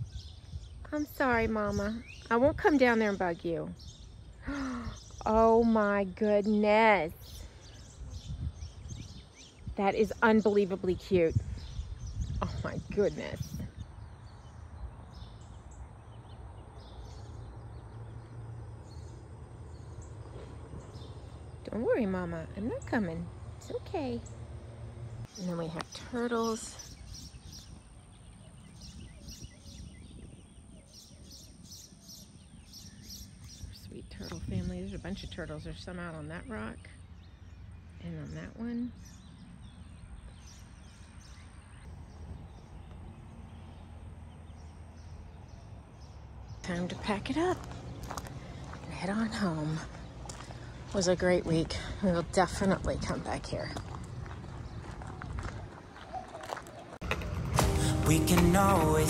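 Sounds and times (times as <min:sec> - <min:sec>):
low steady rumble: 0:14.8 - 0:26.3
low rumble: 0:57.0 - 0:59.0.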